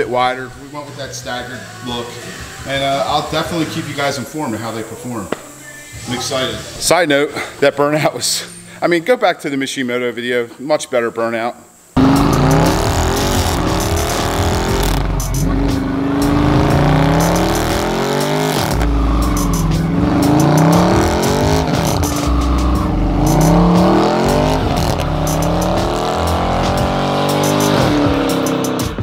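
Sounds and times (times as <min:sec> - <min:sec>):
car engine revving: 0:12.0 - 0:29.0.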